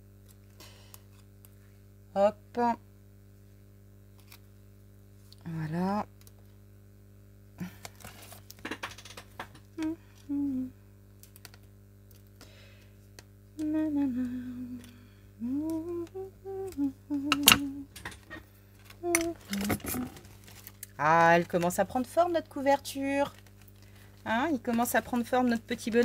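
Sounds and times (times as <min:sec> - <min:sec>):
woman humming: 0:09.8 - 0:10.8, 0:13.6 - 0:18.0, 0:19.0 - 0:20.3.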